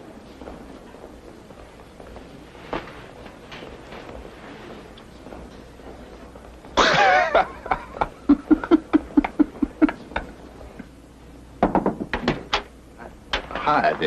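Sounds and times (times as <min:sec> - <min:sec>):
men laughing: 0:06.8 - 0:10.5
sharp knocks: 0:11.6 - 0:12.7.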